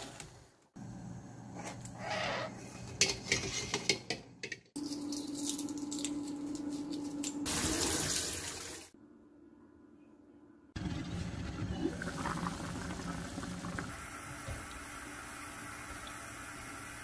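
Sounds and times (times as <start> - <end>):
water running into steel sink: 7.4 - 8.9.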